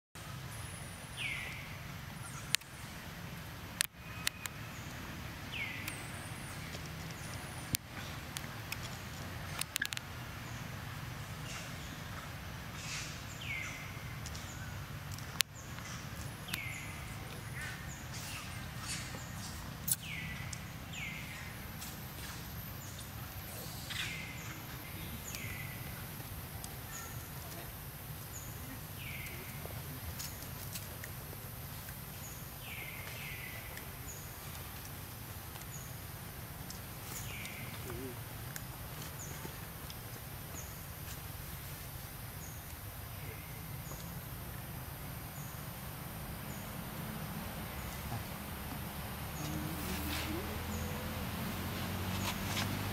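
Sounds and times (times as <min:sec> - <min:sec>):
low rumble and hiss: 0:00.2 - 0:52.9.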